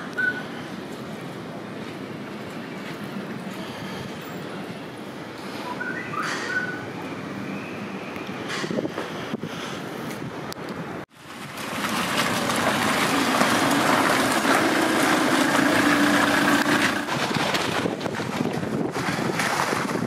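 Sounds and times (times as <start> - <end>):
gusty wind on microphone: 8.4 - 20.0.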